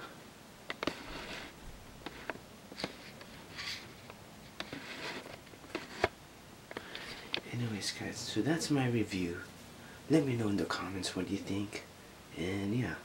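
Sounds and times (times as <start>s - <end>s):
soft rustles: 0.7s - 8.7s
brushing against fur: 0.8s - 6.1s.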